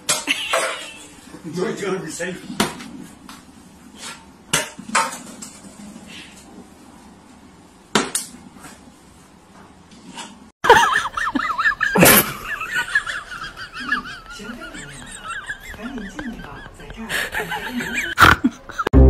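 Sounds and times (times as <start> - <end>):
eggs clanking against metal bowl: 12.7 - 18.2.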